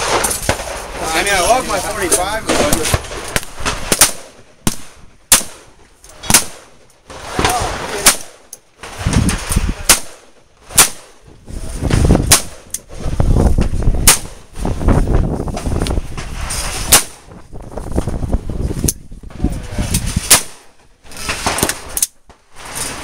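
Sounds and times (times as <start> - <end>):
rifle shots: 2.4 - 11.2, 12.2 - 12.7, 14.0 - 14.5, 16.7 - 17.3, 20.2 - 22.1.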